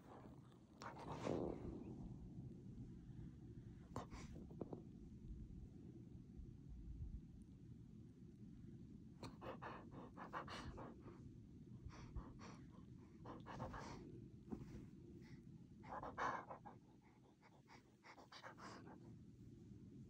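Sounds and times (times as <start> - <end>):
dog huffing: 13.3 - 14.0.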